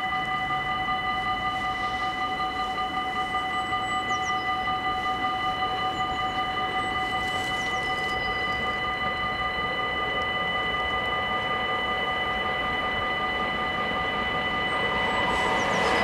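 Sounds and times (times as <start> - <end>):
level crossing bells ringing: 0.0 - 16.0.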